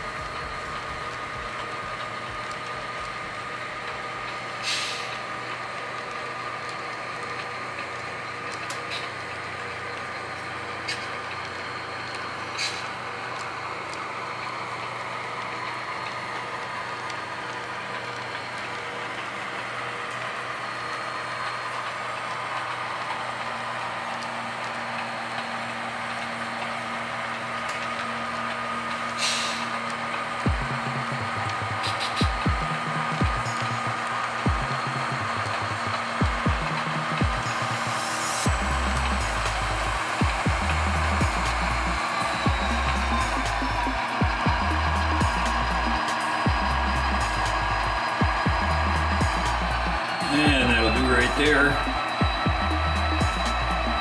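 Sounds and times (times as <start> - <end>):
model cars rolling on track: 0.0 - 54.0
model diesel engine whine: 0.0 - 54.0
short hiss: 4.6 - 5.2, 29.2 - 29.7.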